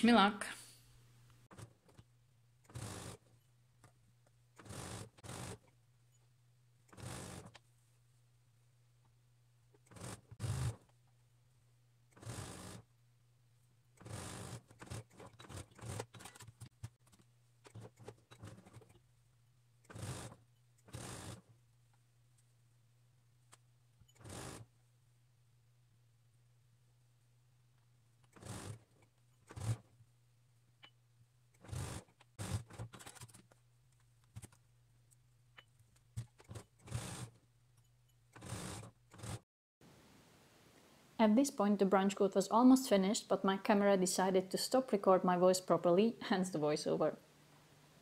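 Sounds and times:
sewing machine clicks: 1.5s - 5.8s, 6.8s - 7.6s, 9.7s - 11.0s, 12.1s - 12.9s, 13.9s - 19.1s, 19.8s - 21.5s, 23.5s - 24.7s, 28.2s - 29.9s, 30.8s - 34.6s, 35.5s - 39.4s.

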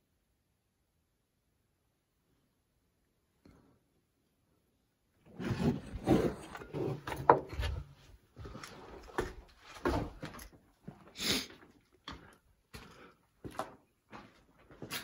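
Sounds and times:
footsteps scuffing on concrete: 6.8s - 15.0s.

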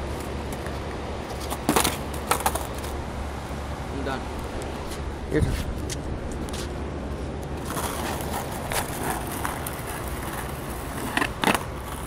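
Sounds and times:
skateboard wheels rolling on asphalt: 0.0s - 12.0s
skateboard clacks: 0.2s - 3.0s, 7.5s - 12.0s.

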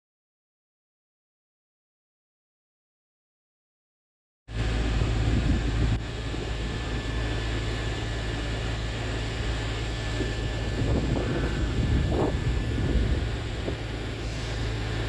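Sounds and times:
electric train low hum: 4.5s - 15.0s
faint high whine: 4.5s - 15.0s.

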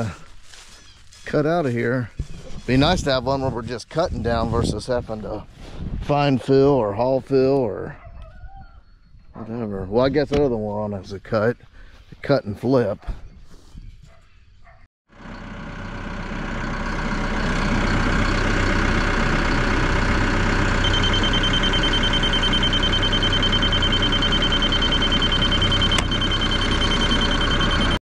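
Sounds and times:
dozer diesel engine running: 0.0s - 8.0s, 15.1s - 28.0s.

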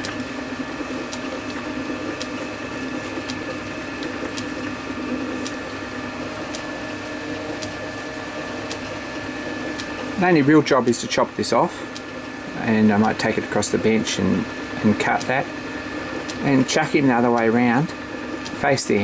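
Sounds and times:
lathe humming: 0.0s - 19.0s
light tick of turning chuck: 15.2s - 15.4s, 16.3s - 16.5s.

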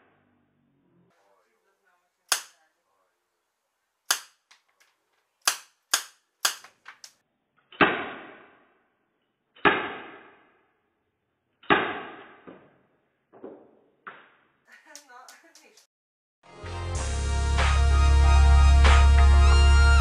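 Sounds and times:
airsoft revolver cracks: 2.3s - 2.6s, 4.1s - 4.6s, 5.4s - 7.1s
slow motion gunshots: 7.7s - 8.8s, 9.6s - 10.8s, 11.6s - 14.4s.

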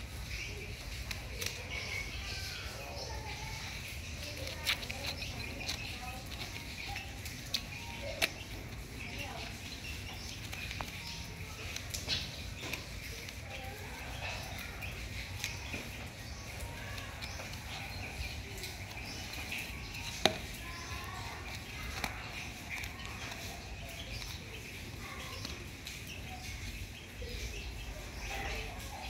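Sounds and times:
monkey handling toys: 0.6s - 26.3s.

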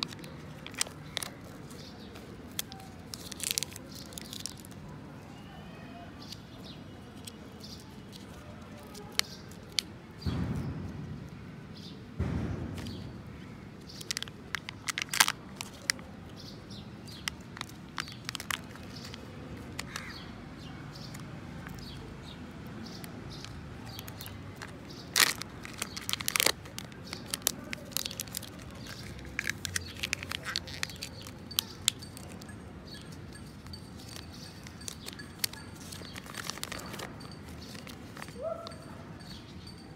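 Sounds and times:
packaging crinkling and tearing: 0.0s - 5.0s, 7.2s - 9.9s, 12.7s - 38.8s
dull thuds: 12.2s - 13.4s.

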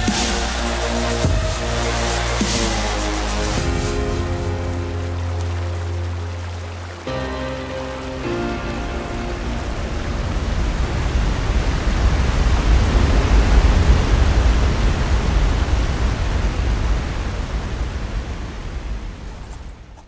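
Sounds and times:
rushing noise with deep rumble: 9.0s - 19.4s.

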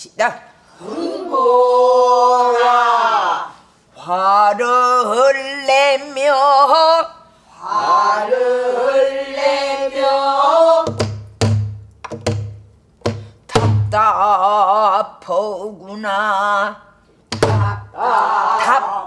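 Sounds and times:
woman singing with vibrato: 13.9s - 16.9s.

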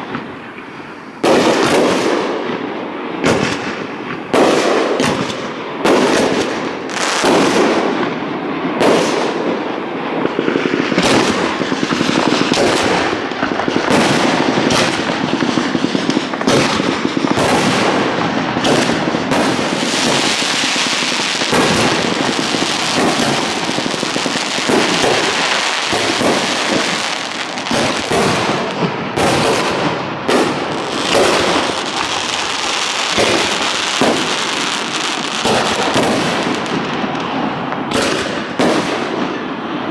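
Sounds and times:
firework crackle: 0.0s - 39.9s
firework shells bursting: 10.2s - 39.4s.

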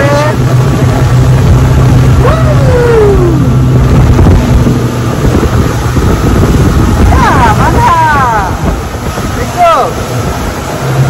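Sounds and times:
outboard motor running: 0.0s - 11.0s
rushing wind and water: 0.0s - 11.0s
person calling out: 2.2s - 3.5s.

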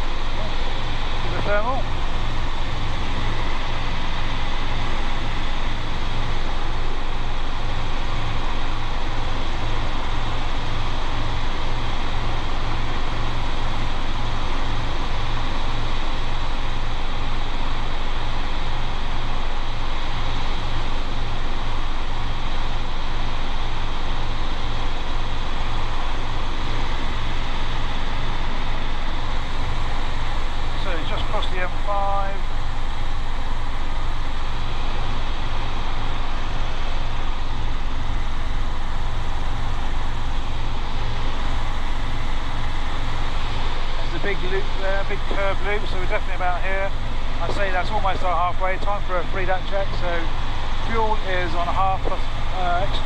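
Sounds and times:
helicopter engine and rotor noise: 0.0s - 53.0s.

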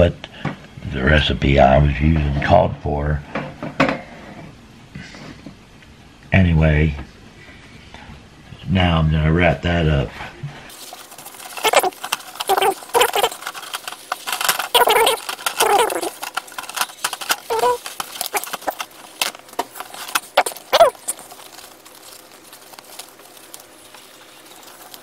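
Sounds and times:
paper crinkling: 10.7s - 25.0s
paper towels tearing: 10.7s - 25.0s
short squeaks: 11.3s - 19.2s, 19.8s - 25.0s.

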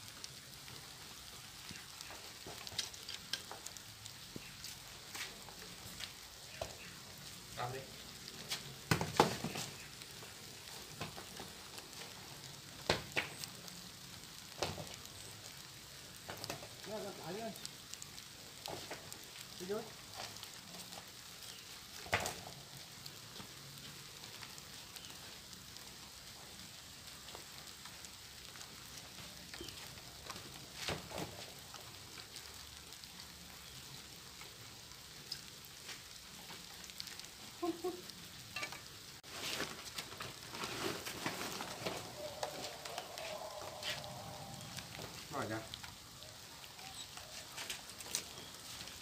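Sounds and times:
crackling hiss: 0.0s - 49.0s
plastic sack rustling: 39.2s - 45.3s.

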